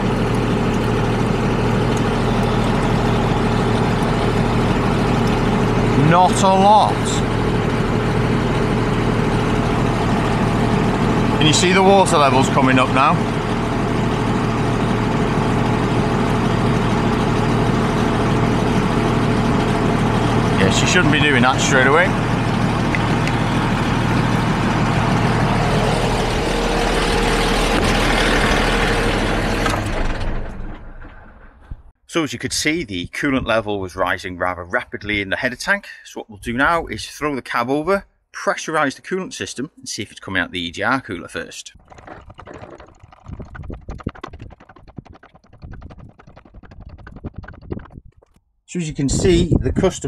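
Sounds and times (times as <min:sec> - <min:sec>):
truck diesel engine idling: 0:00.0 - 0:29.9
hydraulic pump clicking and knocking: 0:00.0 - 0:31.8, 0:41.8 - 0:48.4
low rumble: 0:41.8 - 0:48.4.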